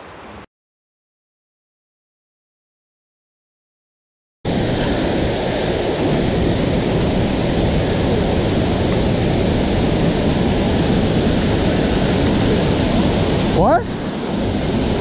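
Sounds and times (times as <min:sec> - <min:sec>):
waterfall rushing: 0:04.5 - 0:15.0.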